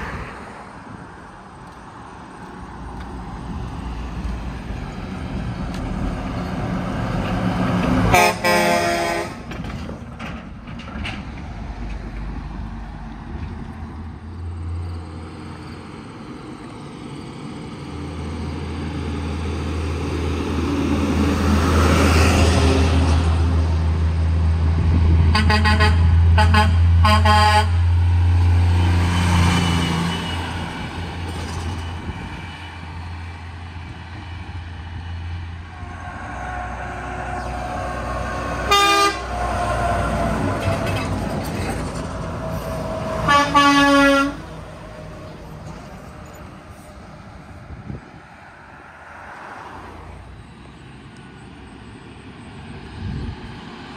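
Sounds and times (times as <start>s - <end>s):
semi truck diesel engine passing: 0.0s - 53.9s
truck air horn toots: 8.1s - 9.5s, 25.3s - 27.9s, 38.6s - 39.6s, 43.2s - 44.5s.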